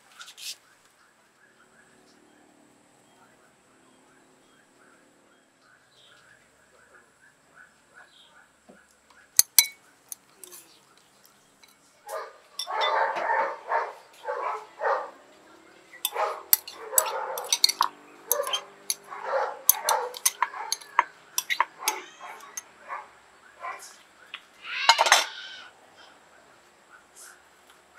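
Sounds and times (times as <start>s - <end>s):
metal spoon clinking on glass bowl: 9.4s - 10.6s, 12.6s - 13.0s, 16.0s - 22.7s
dog barking: 12.1s - 15.3s, 16.1s - 17.7s, 18.3s - 24.0s.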